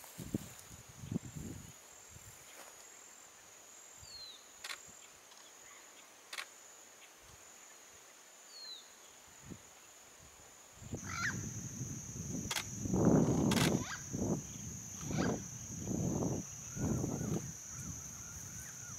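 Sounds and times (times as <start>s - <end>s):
low rustling noise: 0.0s - 3.0s
high-pitched insect drone: 10.6s - 18.9s
sharp clicks: 12.4s - 13.8s.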